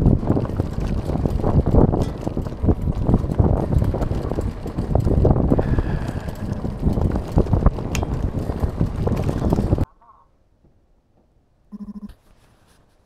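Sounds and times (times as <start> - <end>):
bike knocks and rattles: 0.0 - 9.9
wind buffeting microphone: 0.0 - 9.9.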